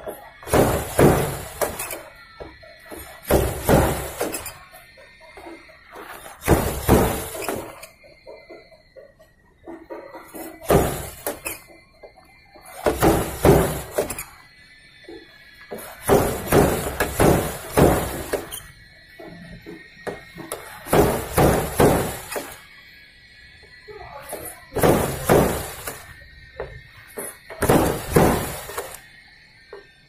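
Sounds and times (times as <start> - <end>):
metal panel thunks and squeaks: 0.1 - 2.2, 2.8 - 4.9, 5.8 - 8.0, 9.9 - 11.8, 12.6 - 14.5, 15.7 - 18.7, 20.4 - 22.6, 27.2 - 29.0.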